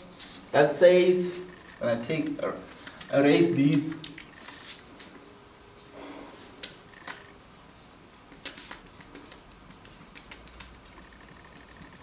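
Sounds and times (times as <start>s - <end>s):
whiteboard rubbing: 0.0s - 0.5s, 3.4s - 12.0s.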